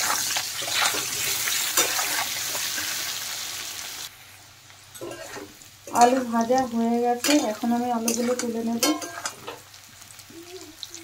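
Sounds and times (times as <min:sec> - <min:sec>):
metal spatula scraping: 0:00.0 - 0:03.0, 0:05.0 - 0:06.4, 0:07.2 - 0:09.6
potatoes sizzling in oil: 0:00.0 - 0:11.0.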